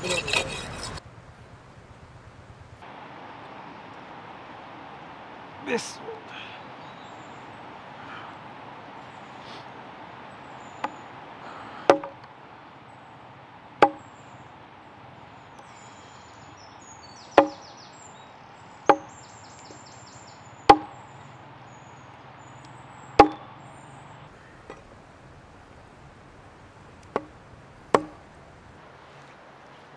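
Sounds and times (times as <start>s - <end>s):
blade chopping with ring: 20.7s - 21.0s, 23.2s - 23.5s.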